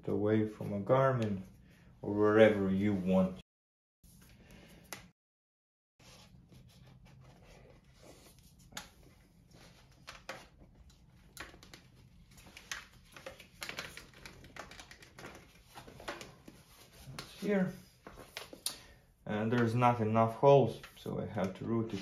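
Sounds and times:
rubber strap clicks and rustles: 0:09.9 - 0:17.2.

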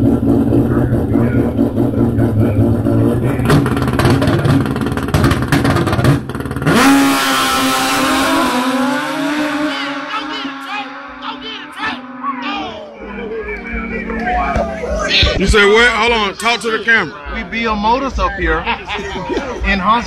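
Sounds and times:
motorcycle engine revving and popping: 0:00.0 - 0:12.3.

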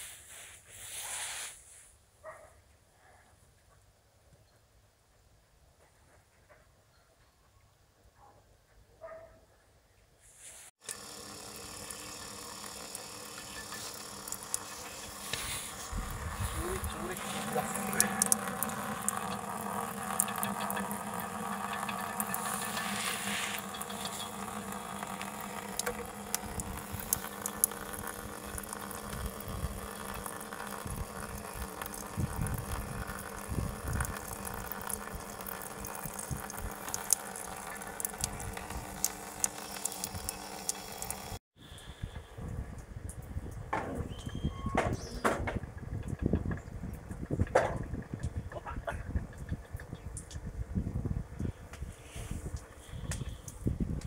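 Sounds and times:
water trickling into plastic tub: 0:10.8 - 0:41.4
small drip-like clicks: 0:10.8 - 0:43.6, 0:45.9 - 0:51.9, 0:52.5 - 0:54.0.

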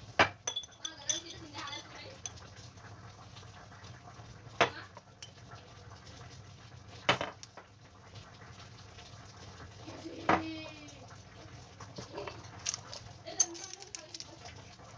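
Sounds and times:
metal teaspoon clinking: 0:00.4 - 0:02.4, 0:05.2 - 0:05.4, 0:12.6 - 0:14.4.

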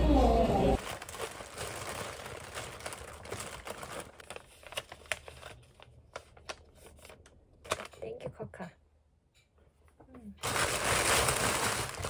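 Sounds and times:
plastic bag crinkling: 0:00.6 - 0:08.0, 0:10.4 - 0:12.0.

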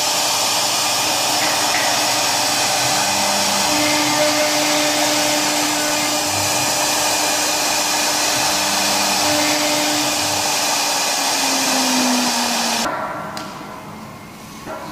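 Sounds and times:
lower gliding motor tone: 0:00.0 - 0:12.9
router spindle whine and cutting hiss: 0:00.0 - 0:12.9.

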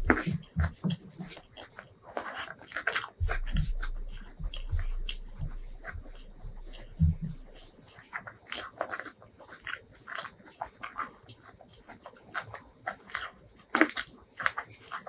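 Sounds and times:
fingers pressing food on wood: 0:00.0 - 0:09.2
chewing with crunches: 0:00.0 - 0:15.0.

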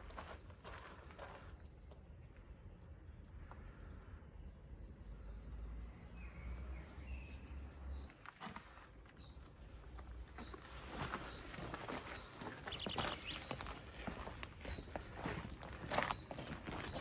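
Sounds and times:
faint bird chirps: 0:10.3 - 0:17.0.

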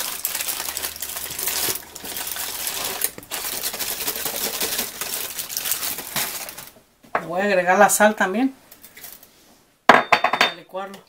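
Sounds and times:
aluminium foil crinkling: 0:00.0 - 0:06.8, 0:08.7 - 0:09.3.

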